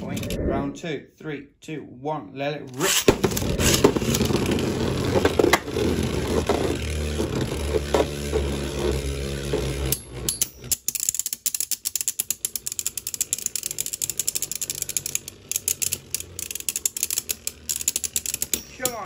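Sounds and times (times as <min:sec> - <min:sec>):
spinning tops whirring: 0:02.8 - 0:10.8, 0:12.2 - 0:19.0
spinning tops grinding clicks: 0:09.6 - 0:19.0.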